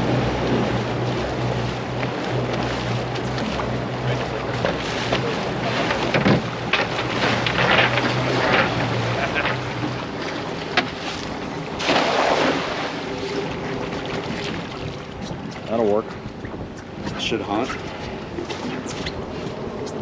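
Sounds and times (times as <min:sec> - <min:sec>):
low motor hum: 0:00.0 - 0:20.0
water lapping against hull: 0:00.0 - 0:20.0
wind on microphone: 0:00.0 - 0:20.0
net splashing into water: 0:11.8 - 0:13.0.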